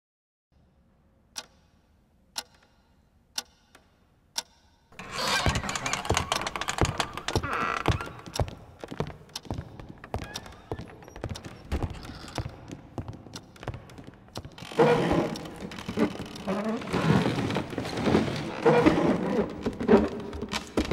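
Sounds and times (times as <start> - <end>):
children's footsteps clattering: 5.0 - 20.9
footsteps on wooden floor: 5.0 - 20.9.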